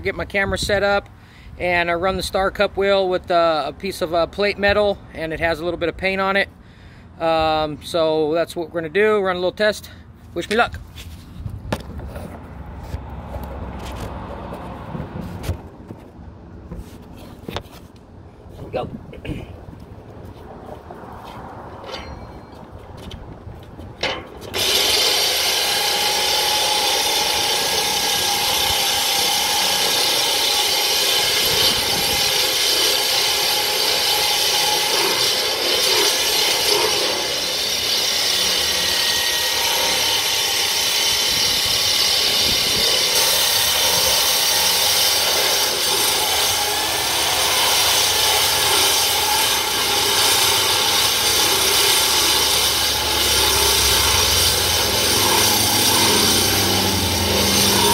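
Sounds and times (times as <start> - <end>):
angle grinder grinding steel: 24.0 - 57.9.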